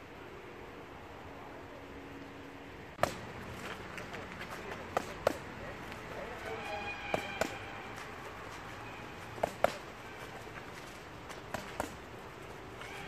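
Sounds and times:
boxing gloves striking mitts: 0:03.0 - 0:04.0, 0:04.8 - 0:05.5, 0:07.0 - 0:07.7, 0:09.2 - 0:10.2, 0:11.2 - 0:12.1.

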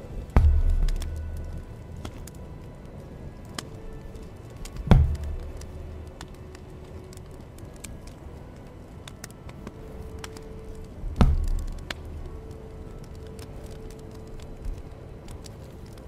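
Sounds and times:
faint ticks: 0:00.2 - 0:16.0
dull thumps: 0:00.3 - 0:01.4.

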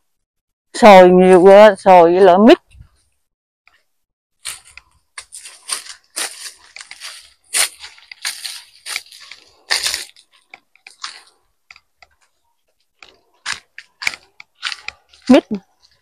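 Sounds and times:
footsteps crunching on leaves: 0:04.4 - 0:11.4, 0:13.5 - 0:16.0.

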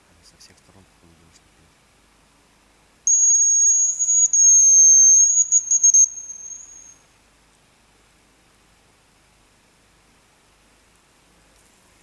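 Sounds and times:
bird decoy whistle: 0:03.1 - 0:07.0.

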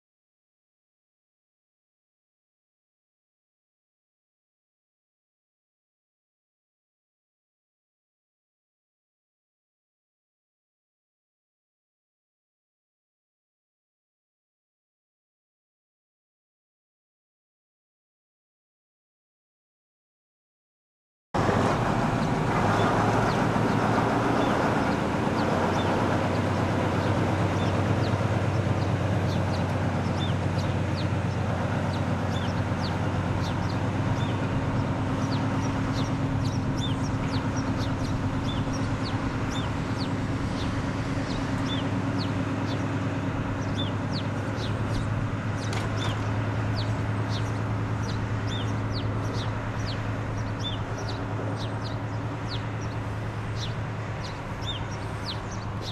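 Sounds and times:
birds chirping: 0:21.4 - 0:55.9
diesel locomotive engine running: 0:21.4 - 0:55.9.

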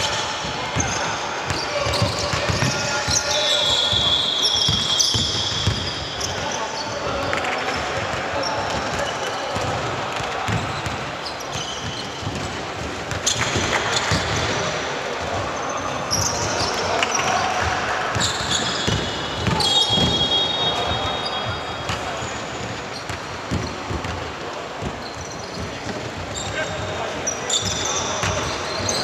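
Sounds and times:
players' voices: 0:00.0 - 0:29.0
basketball bouncing on court: 0:00.8 - 0:03.2, 0:03.9 - 0:06.5, 0:07.2 - 0:14.6, 0:17.6 - 0:26.9, 0:27.6 - 0:29.0
shoe squeaks: 0:00.8 - 0:09.5, 0:10.6 - 0:12.5, 0:18.1 - 0:23.8, 0:24.8 - 0:29.0.

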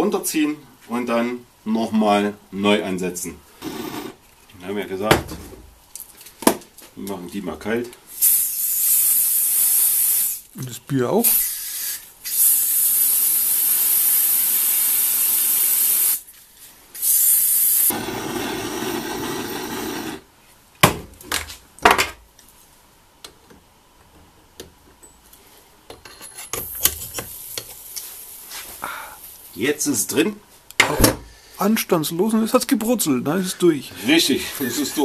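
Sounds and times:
gas torch flame: 0:03.6 - 0:04.2, 0:08.1 - 0:10.5, 0:11.2 - 0:16.2, 0:17.0 - 0:20.3
aerosol spray hissing: 0:08.1 - 0:10.4, 0:11.2 - 0:16.2, 0:17.0 - 0:20.2.

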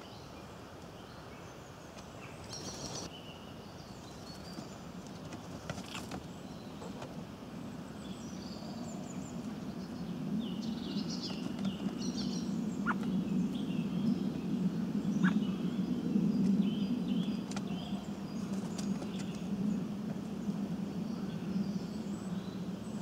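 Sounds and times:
small songbirds chirping and trilling: 0:00.0 - 0:23.0
steady low rumble: 0:06.4 - 0:23.0.

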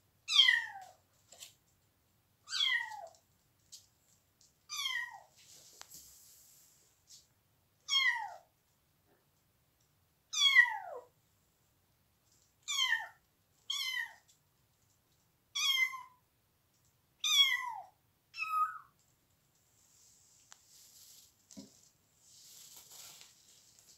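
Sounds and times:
kitten meowing: 0:02.5 - 0:03.1, 0:12.7 - 0:14.2, 0:15.6 - 0:16.2, 0:17.2 - 0:18.9.

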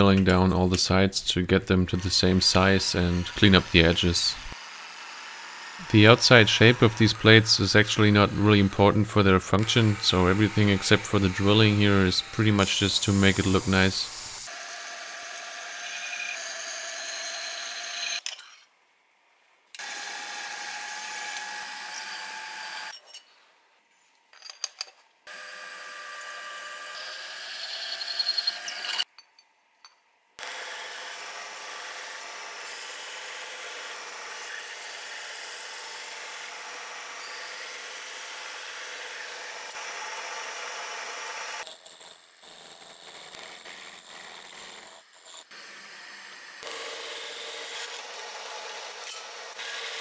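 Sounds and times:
band saw cutting metal plate: 0:01.9 - 0:18.2, 0:30.4 - 0:41.6, 0:42.7 - 0:50.0
milling machine drilling whine: 0:01.9 - 0:18.2, 0:25.3 - 0:29.0.

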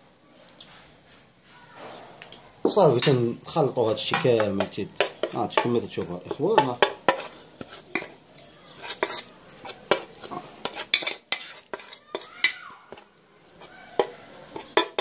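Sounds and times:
metal spoon scraping enamel plate: 0:03.8 - 0:13.0, 0:13.6 - 0:15.0.

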